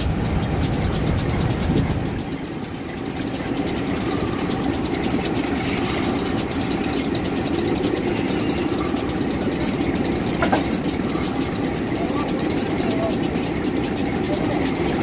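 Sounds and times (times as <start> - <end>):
diesel locomotive engines running: 0.0 - 15.0
faint high whistle: 7.9 - 9.2.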